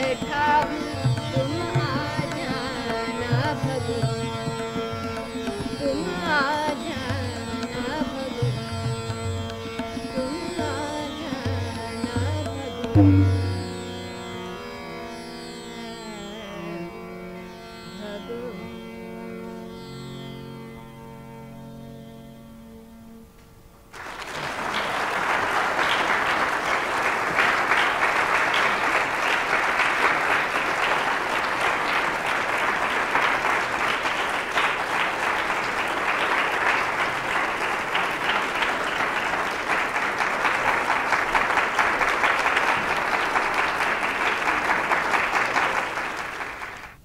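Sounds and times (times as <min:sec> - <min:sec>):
held drone note of music: 0:13.0 - 0:14.1
audience applauding: 0:23.9 - 0:47.0.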